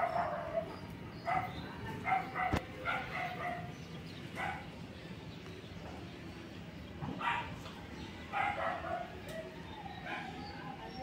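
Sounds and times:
dog barking: 0.0s - 3.7s, 4.4s - 4.7s, 7.2s - 7.6s, 8.3s - 10.4s.

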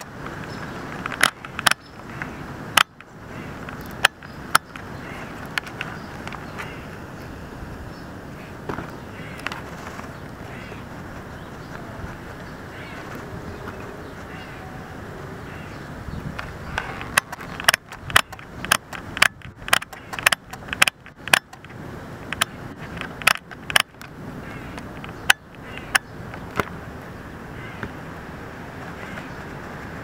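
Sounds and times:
turtle beak clicks and snaps: 17.0s - 24.0s.

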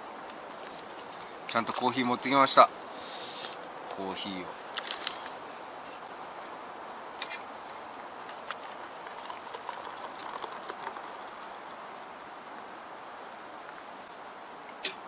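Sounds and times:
hot water pouring into mug: 8.2s - 11.8s.

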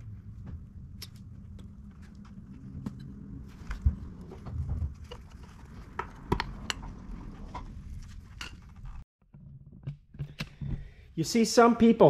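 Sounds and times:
low rumble: 0.0s - 9.1s.

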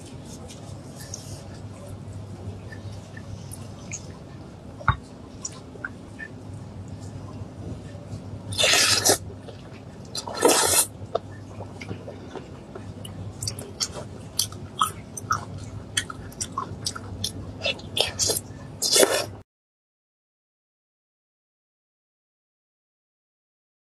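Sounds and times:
person chewing: 8.5s - 19.3s.

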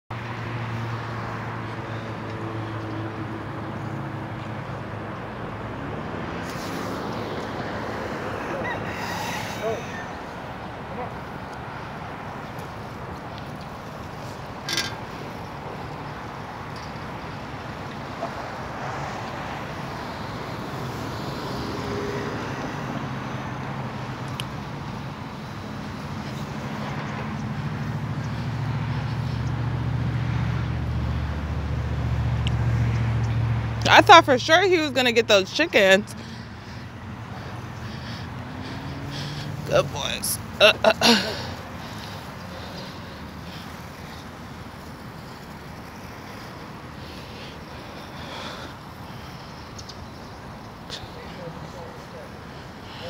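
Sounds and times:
outdoor rush: 0.1s - 53.0s
vehicle engine humming: 0.1s - 53.0s
skate wheels rolling over asphalt: 42.0s - 48.9s.

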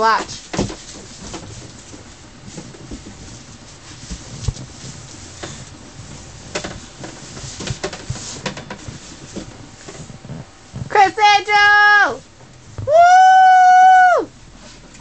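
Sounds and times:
light knocks and rustling: 0.2s - 10.9s.

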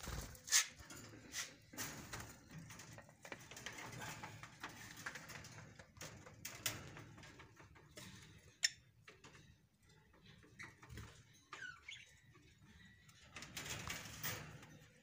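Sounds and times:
clicks and taps on wire cage: 0.5s - 9.5s.

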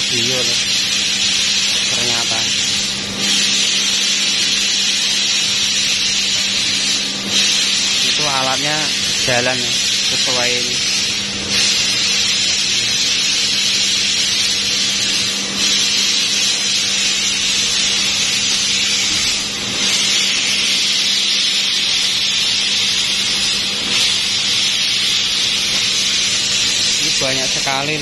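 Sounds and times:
laser cutter hissing: 0.0s - 28.0s.

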